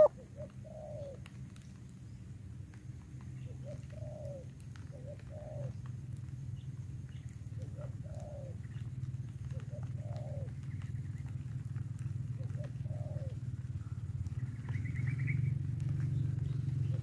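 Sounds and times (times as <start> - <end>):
dove cooing: 0.0 - 1.4, 3.4 - 5.8, 7.1 - 17.0
steady low hum: 10.6 - 17.0.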